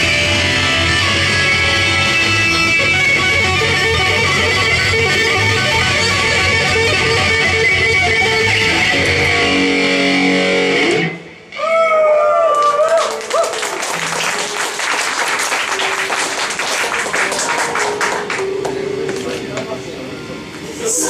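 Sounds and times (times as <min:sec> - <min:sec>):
saxophone: 0:00.0 - 0:09.6
strummed guitar: 0:00.0 - 0:11.6.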